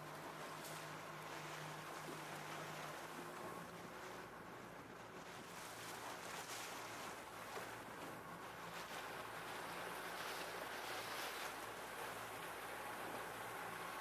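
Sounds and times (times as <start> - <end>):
faint low engine hum: 0.0 - 14.0
wind: 0.0 - 14.0.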